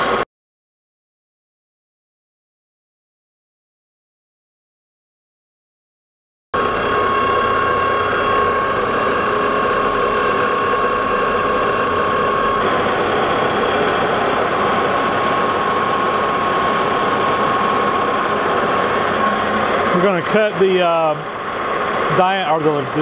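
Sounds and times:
lathe gear whine: 0.0 - 0.2, 6.6 - 23.0.

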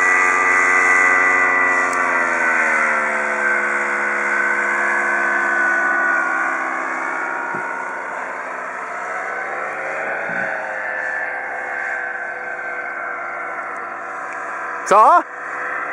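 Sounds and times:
paramotor engine buzzing: 0.0 - 15.9.

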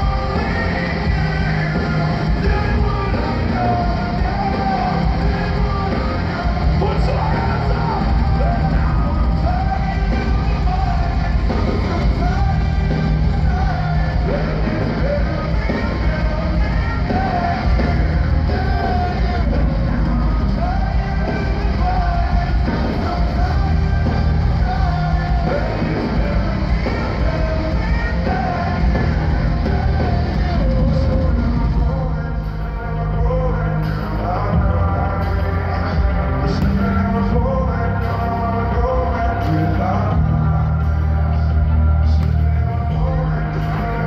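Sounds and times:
lead singer singing: 0.0 - 44.0
live rock band: 0.0 - 44.0.

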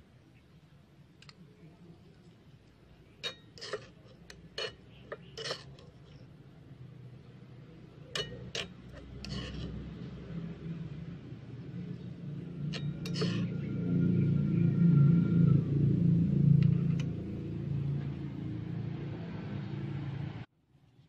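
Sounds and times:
spoon clinking against metal pan: 8.0 - 9.4.

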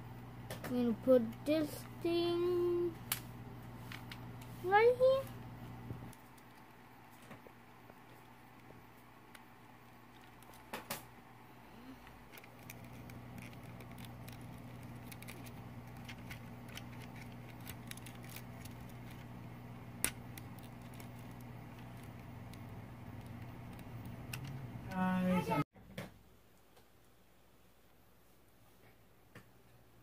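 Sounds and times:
steady low hum: 0.0 - 25.7
plastic parts clicking together: 12.0 - 19.3, 20.0 - 24.6.

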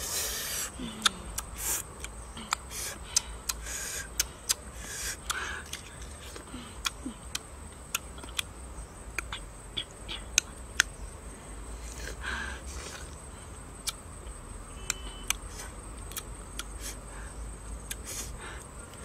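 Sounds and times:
faint high-pitched whine: 0.0 - 19.0
crunching bites: 5.2 - 8.5, 14.8 - 16.9.

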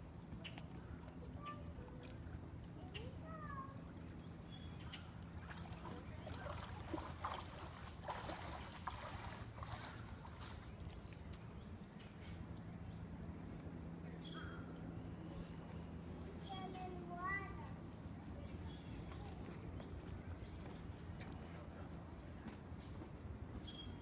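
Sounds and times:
steady low hum: 0.0 - 24.0
water splashing and sloshing: 3.8 - 11.6.

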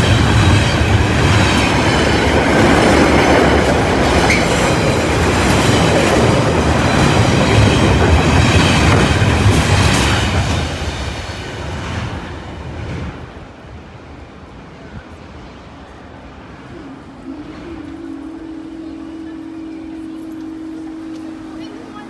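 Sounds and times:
freight train wheels rumbling: 0.0 - 22.0.

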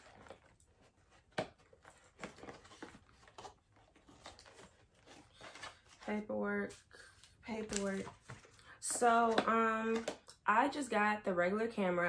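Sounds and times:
cardboard rustling and tapping: 0.0 - 6.0.

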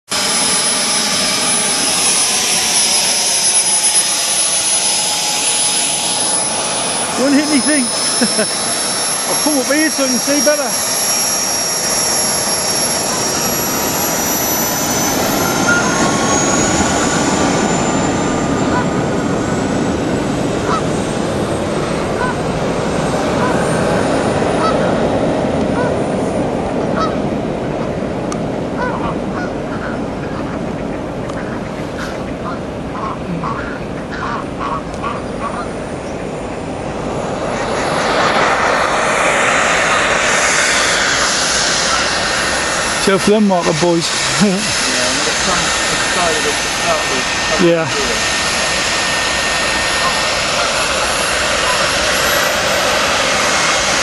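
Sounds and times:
jet engine whistling and hissing: 0.0 - 54.0
geese honking: 20.6 - 20.9, 22.2 - 22.4, 24.6 - 24.9, 27.0 - 27.2, 28.8 - 35.8.

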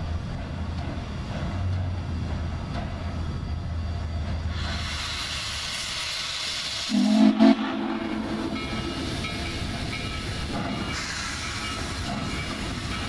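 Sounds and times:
steam locomotive rumbling: 0.0 - 13.0
steam hissing: 4.4 - 13.0.

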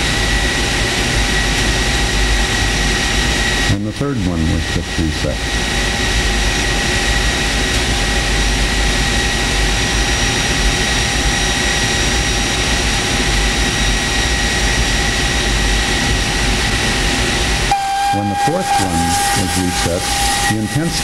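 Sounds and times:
generator running: 0.0 - 21.0
high whining tones: 13.9 - 21.0.

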